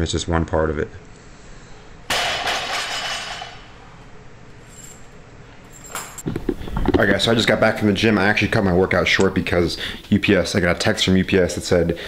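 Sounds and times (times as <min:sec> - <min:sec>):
barbell plates crashing and clanging: 0:02.1 - 0:03.8.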